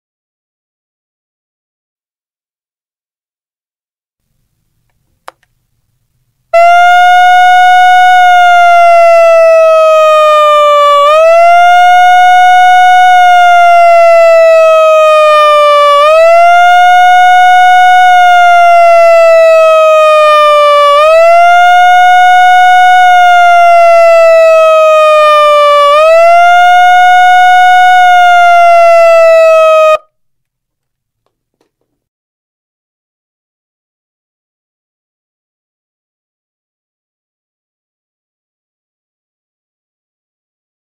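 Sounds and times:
megaphone electronic siren: 6.6 - 30.1.

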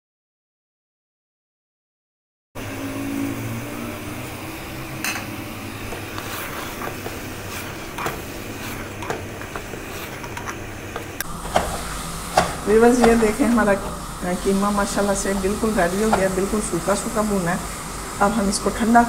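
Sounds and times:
meat frying in oil: 3.8 - 19.0
wooden spoon scraping a pot: 5.8 - 13.4.

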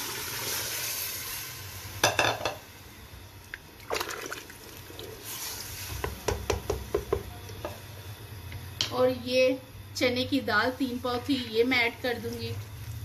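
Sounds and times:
water pouring and splashing: 3.8 - 5.6.

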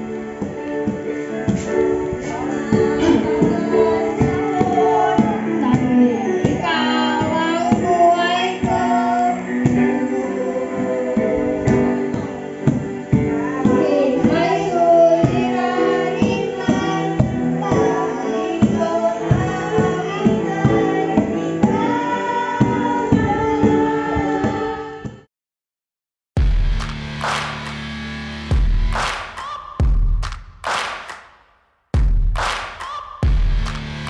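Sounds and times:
instrumental accompaniment: 0.0 - 24.9
children singing worship song: 0.0 - 25.2
cajon beat: 28.5 - 31.2, 32.0 - 34.0.

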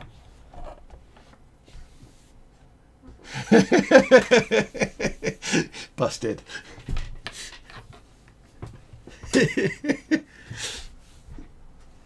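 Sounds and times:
man laughing out loud: 3.2 - 5.9, 9.1 - 10.5.

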